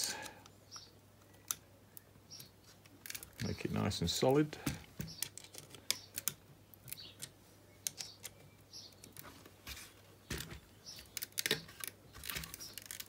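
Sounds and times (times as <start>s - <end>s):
clicks and taps of model handled: 4.6s - 9.3s.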